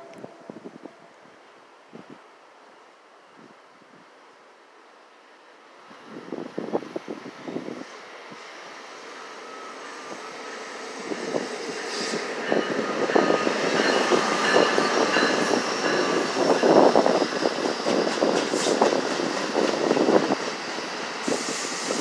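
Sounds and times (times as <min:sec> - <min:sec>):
high metallic whine: 0:09.0 - 0:21.3
train wheels clacking: 0:10.0 - 0:22.0.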